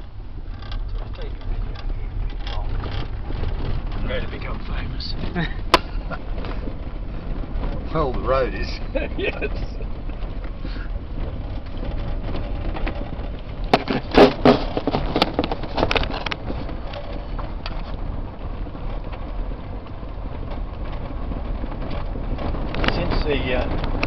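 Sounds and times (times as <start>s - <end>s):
truck knocks and rattles: 0.0s - 24.0s
tyres rumbling on gravel: 0.0s - 24.0s.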